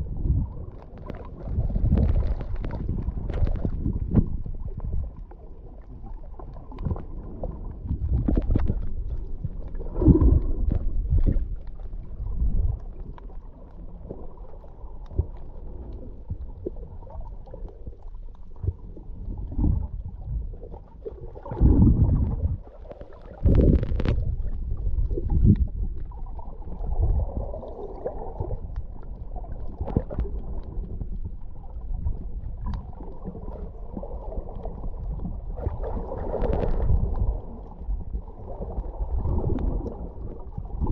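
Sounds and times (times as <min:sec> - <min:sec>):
muffled underwater water rumbling: 0:00.0 - 0:40.9
small clicks and pops: 0:00.7 - 0:05.4, 0:07.8 - 0:12.0, 0:21.4 - 0:27.0, 0:27.6 - 0:33.6, 0:34.5 - 0:40.0.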